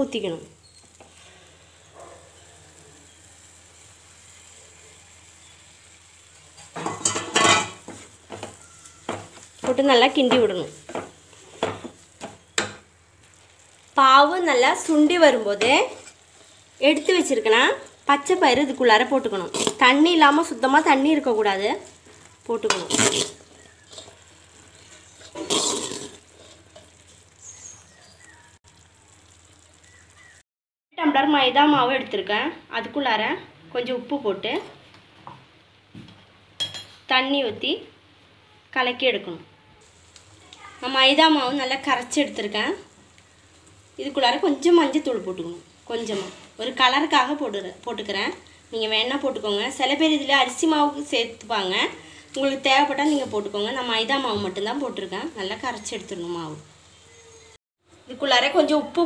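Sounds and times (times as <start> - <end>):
faint sizzling in pan: 0.0 - 30.4, 31.0 - 59.0
utensils scraping and clattering pan: 6.5 - 12.8, 22.7 - 27.0, 46.1 - 46.6
wooden spoon stirring: 21.8 - 27.8.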